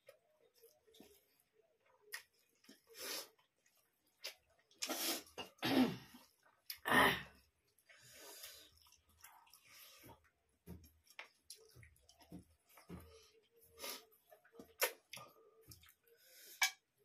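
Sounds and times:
eating mouth noises and clicks: 14.6s - 16.0s.

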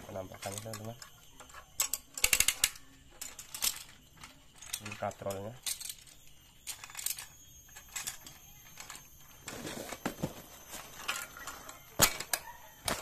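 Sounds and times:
cardboard packaging rustling: 9.4s - 11.4s.

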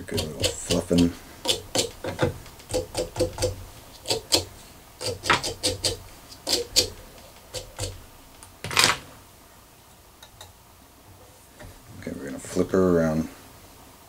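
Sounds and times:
brush scratching through fibres: 0.0s - 8.1s.

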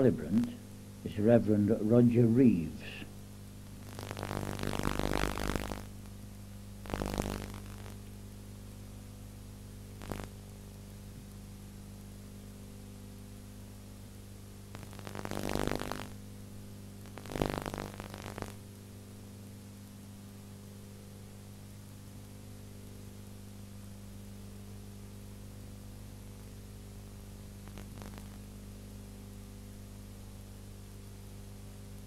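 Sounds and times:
electrical hum: 0.0s - 32.0s
rough bursts of noise: 3.8s - 6.0s, 6.9s - 8.0s, 14.8s - 16.2s, 17.1s - 18.6s.

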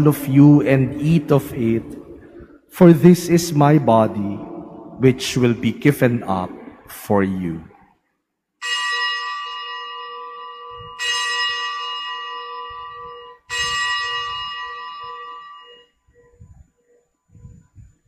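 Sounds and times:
altar bell ringing: 8.6s - 16.0s.

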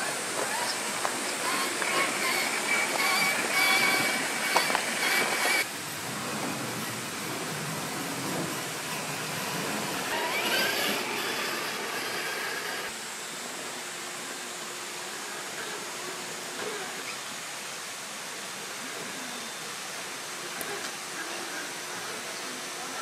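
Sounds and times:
electric motor whining: 0.0s - 5.7s, 9.4s - 12.9s
steady rushing hiss: 0.0s - 23.0s.

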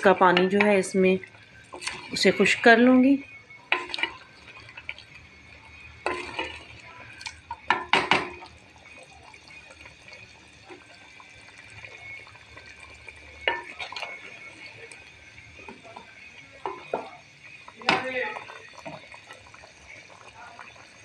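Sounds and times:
spoon stirring in clay pot: 0.0s - 1.0s, 1.6s - 2.9s, 3.7s - 8.5s, 13.4s - 15.0s, 15.6s - 19.4s
gravy bubbling: 0.0s - 21.0s
spoon knocking against pot: 7.7s - 8.4s, 17.8s - 18.2s.

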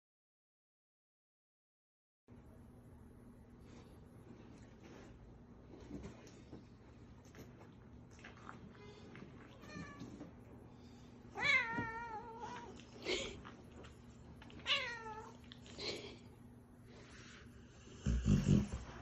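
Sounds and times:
cat meowing: 11.4s - 12.7s, 14.6s - 15.4s.

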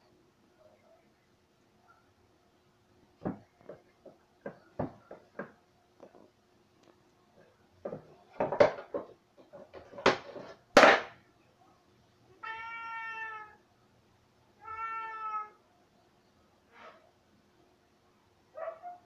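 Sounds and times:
cat knocking things on shelf: 7.8s - 11.2s
cat meowing: 12.4s - 13.6s, 14.6s - 15.6s.

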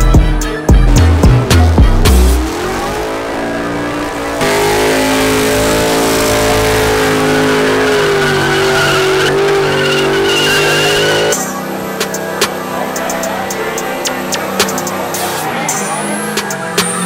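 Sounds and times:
truck engine at high revs: 0.0s - 17.0s
faint high tyre squeal: 6.2s - 11.4s.

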